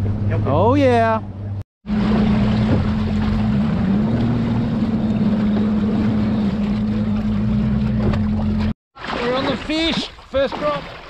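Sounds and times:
motorboat engine running: 0.0s - 8.8s.

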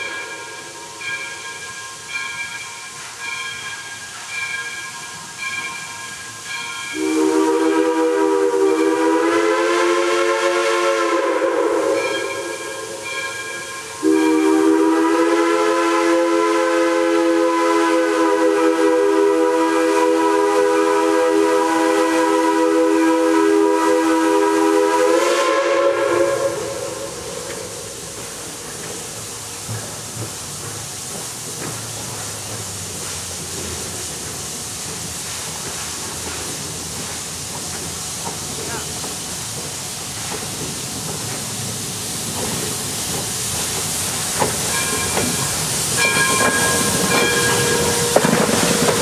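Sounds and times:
locomotive steam hiss: 0.0s - 49.0s
steam whistle blasts: 6.9s - 28.0s, 44.7s - 49.0s.

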